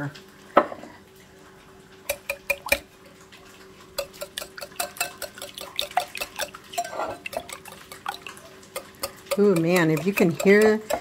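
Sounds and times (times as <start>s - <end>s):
whisk clicking against bowl: 2.1s - 2.8s, 4.0s - 11.0s.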